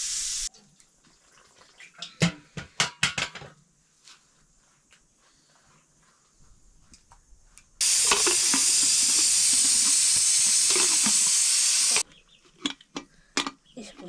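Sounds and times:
food sizzling in hot oil: 0:00.0 - 0:00.5, 0:07.8 - 0:12.0.

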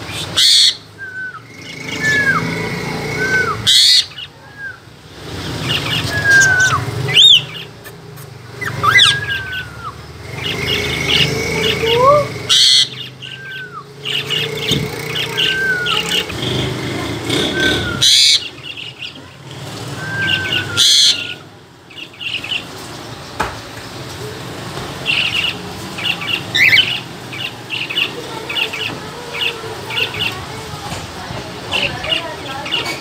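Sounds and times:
bird whistles: 0:00.1 - 0:04.8, 0:05.7 - 0:07.7, 0:08.6 - 0:10.0, 0:17.5 - 0:18.4, 0:20.0 - 0:21.4
loud bird screeches: 0:00.1 - 0:04.8, 0:08.6 - 0:14.4, 0:17.4 - 0:18.7, 0:20.0 - 0:21.4
cockatiels chirping: 0:03.2 - 0:04.7, 0:05.6 - 0:16.4, 0:17.5 - 0:19.2, 0:20.0 - 0:21.4, 0:25.0 - 0:30.4.

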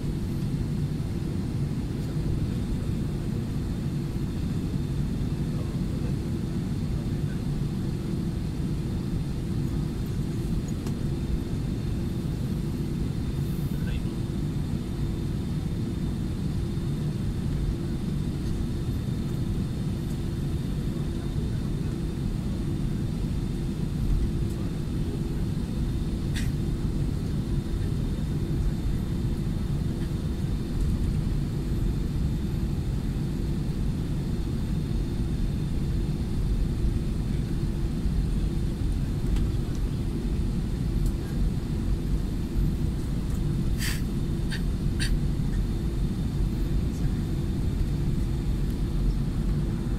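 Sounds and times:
jet engines rumbling in cabin: 0:00.0 - 0:49.9.

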